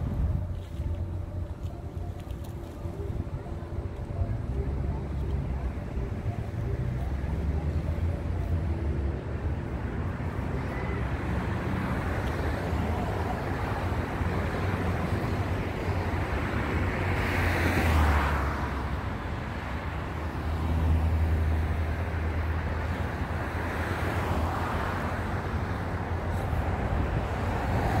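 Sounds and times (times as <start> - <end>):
wind rumble on microphone: 0.0 - 18.0
vehicles passing: 0.0 - 28.0.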